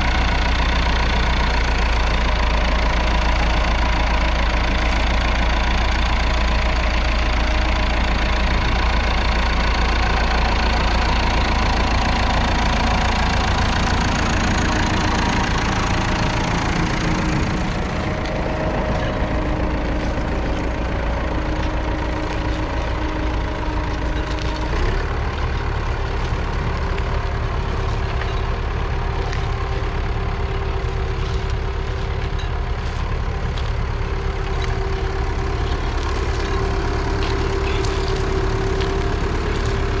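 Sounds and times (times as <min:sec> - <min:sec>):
diesel tractor engine running: 0:00.0 - 0:40.0.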